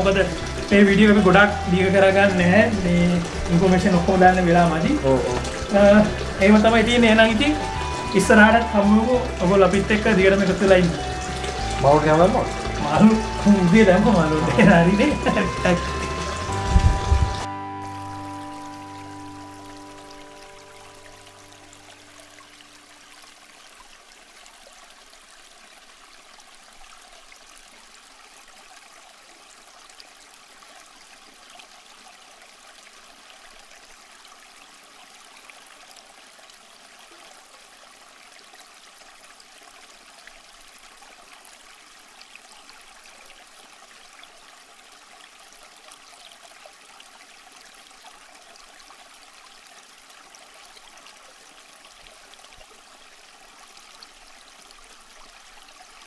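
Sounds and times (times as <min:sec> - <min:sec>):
aquarium water bubbling: 0:00.0 - 0:23.2.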